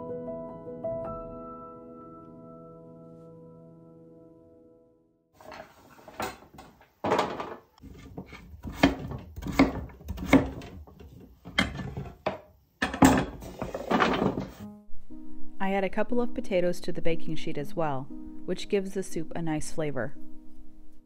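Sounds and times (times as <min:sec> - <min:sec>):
knife chopping on wooden board: 0:07.8 - 0:12.4.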